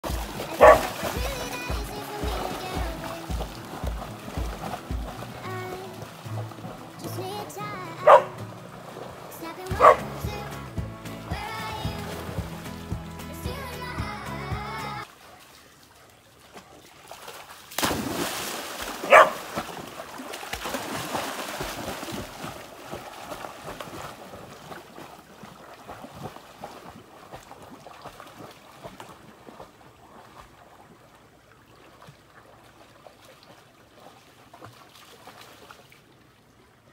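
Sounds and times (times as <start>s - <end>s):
dog splashing in water: 0.0s - 36.2s
dog barking loudly: 0.6s - 1.0s, 8.0s - 8.4s, 9.8s - 10.0s, 19.1s - 19.4s.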